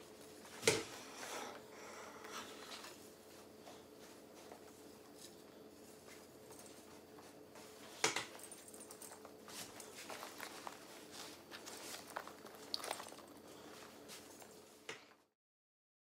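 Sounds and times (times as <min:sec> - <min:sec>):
faint steady hum: 0:00.0 - 0:15.3
clicks and rustles of handling: 0:07.9 - 0:15.2.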